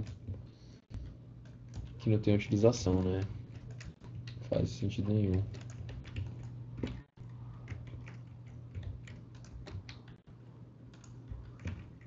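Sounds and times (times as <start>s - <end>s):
low electrical hum: 0.0s - 12.0s
computer keyboard keystrokes: 1.4s - 2.0s, 2.9s - 4.4s, 5.3s - 10.2s, 10.9s - 12.0s.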